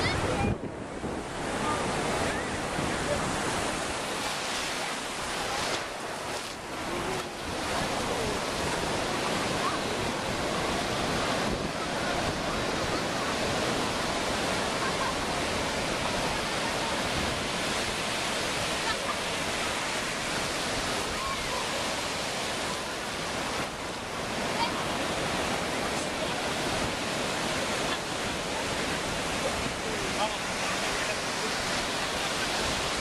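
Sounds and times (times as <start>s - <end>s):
ocean surf breaking: 0.0s - 33.0s.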